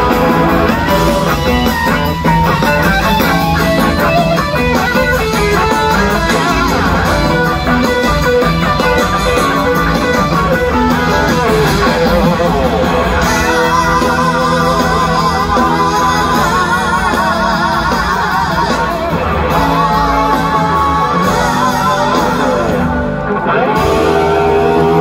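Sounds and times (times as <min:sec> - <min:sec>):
bass and drums: 0:00.0 - 0:25.0
electric guitar sustained notes: 0:00.0 - 0:25.0
live band playing: 0:00.0 - 0:25.0.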